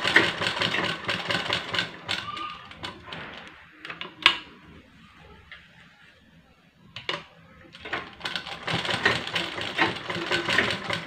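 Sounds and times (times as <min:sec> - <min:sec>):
sewing machine stitching: 0:00.0 - 0:03.5, 0:07.8 - 0:11.0.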